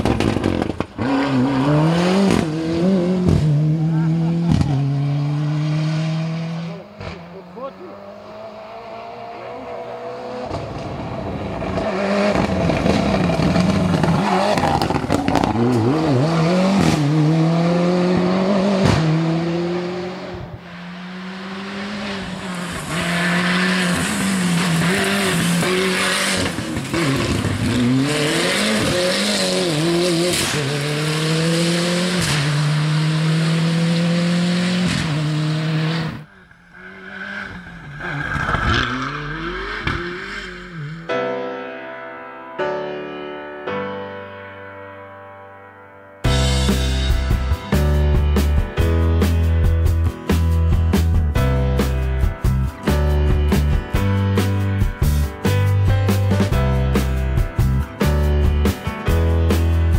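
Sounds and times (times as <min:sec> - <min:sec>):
exhaust pops: 0:00.0 - 0:01.0, 0:04.5 - 0:04.8, 0:11.6 - 0:15.9
rally car engine at full throttle: 0:00.0 - 0:41.2, 0:46.3 - 0:59.9.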